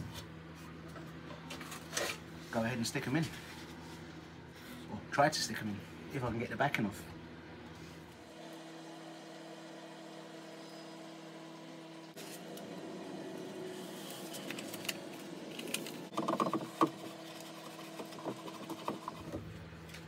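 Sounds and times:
steady low hum: 0.0s - 20.0s
paper backing peeling and crinkling: 13.8s - 20.0s.

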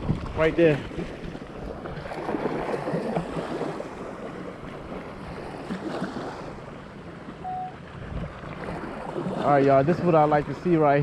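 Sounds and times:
wind on microphone: 0.0s - 6.6s, 7.8s - 11.0s
surf washing: 0.0s - 11.0s
short beep: 7.4s - 7.8s.

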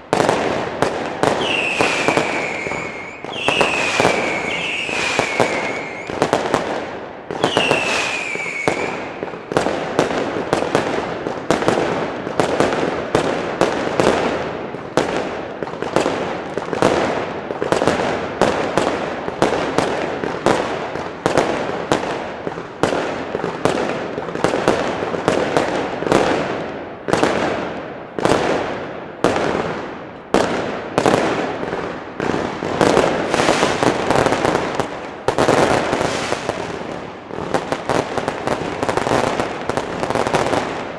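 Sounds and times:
rapid firework bangs: 0.0s - 40.9s
falling firework whistle: 1.3s - 6.4s, 7.4s - 9.3s, 33.3s - 34.0s.

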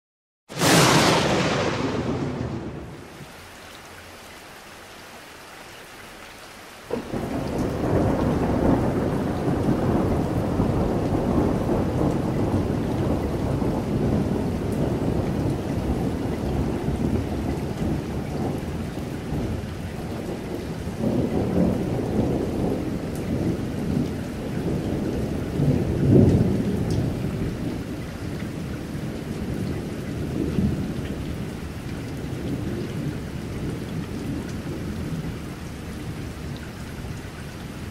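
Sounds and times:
rolling thunder: 0.5s - 3.2s, 6.9s - 31.5s
steady rain: 0.5s - 37.9s.

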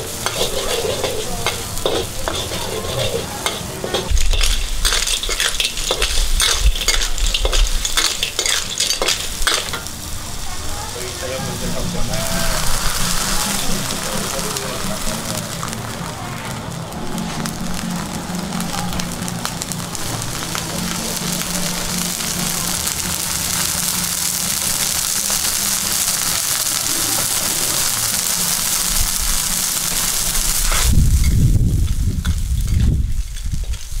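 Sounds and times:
clams sizzling in a wok: 0.0s - 34.0s
low rumble: 10.0s - 24.5s, 30.1s - 34.0s.

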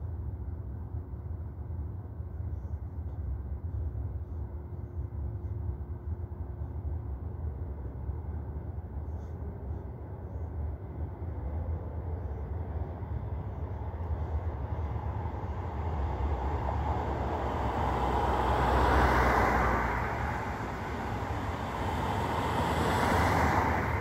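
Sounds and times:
low rumble of traffic: 0.0s - 24.0s
car passing close by: 15.5s - 24.0s.

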